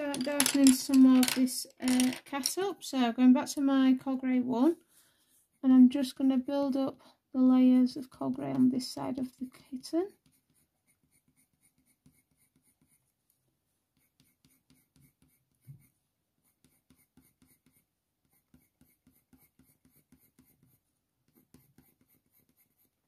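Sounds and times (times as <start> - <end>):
pencil scratching on paper: 8.2 - 13.2, 13.9 - 23.0.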